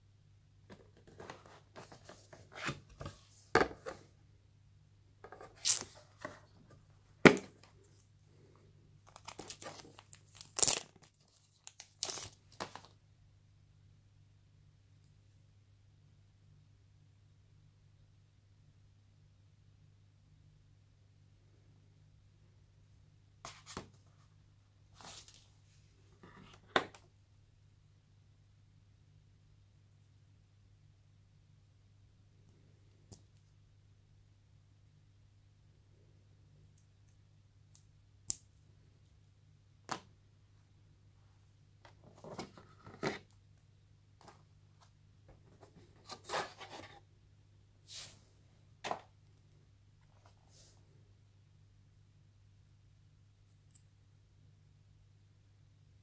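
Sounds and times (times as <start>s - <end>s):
faint low hum: 0.0s - 56.0s.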